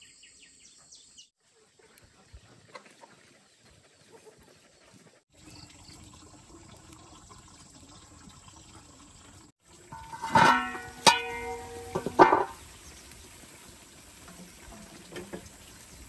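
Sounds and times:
metal pot and lid clanking: 9.8 - 12.8, 14.2 - 15.7.

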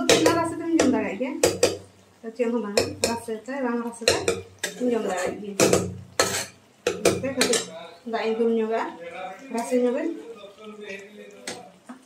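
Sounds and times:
metal spatula clanking on a wok: 0.0 - 1.8, 4.0 - 7.7.

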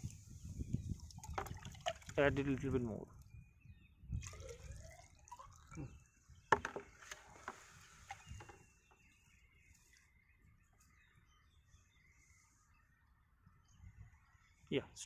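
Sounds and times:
water pouring and trickling: 0.7 - 2.8, 4.1 - 6.8.

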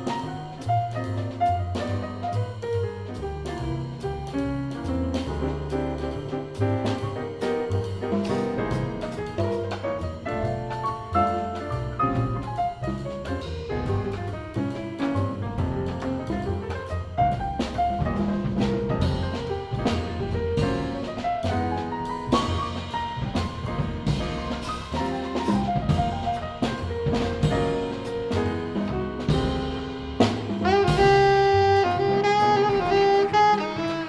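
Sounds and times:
drum kit with cymbal strokes: 0.0 - 34.0
grand piano: 0.0 - 34.0
walking upright bass: 0.0 - 34.0
alto saxophone long notes: 30.6 - 34.0.

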